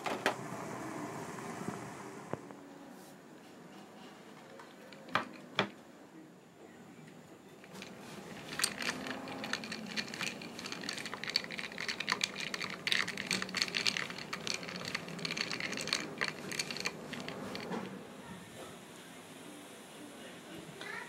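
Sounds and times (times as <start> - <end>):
ice cubes clinking in a glass: 7.7 - 17.9.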